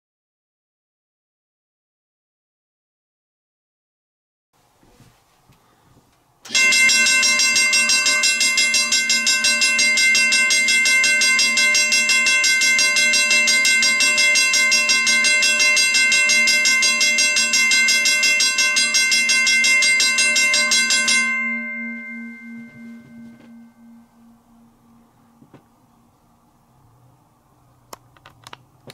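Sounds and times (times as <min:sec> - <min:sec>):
electronic crossing bell ringing: 0:06.5 - 0:25.4
mechanical crossing bell ringing: 0:06.5 - 0:25.4
gong ringing: 0:06.5 - 0:26.7.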